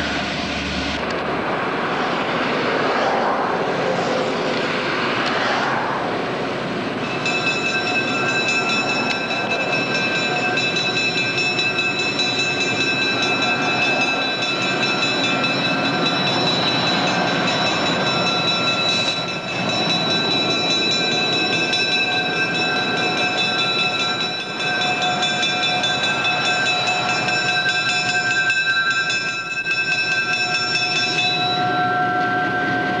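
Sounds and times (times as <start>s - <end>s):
train wheels rumbling on rails: 0.0s - 33.0s
high steady ringing tones: 6.9s - 33.0s.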